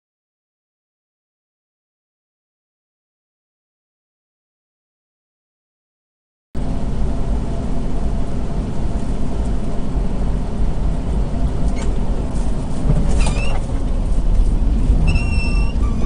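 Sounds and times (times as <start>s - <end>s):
truck engine and road rumble: 6.6s - 16.0s.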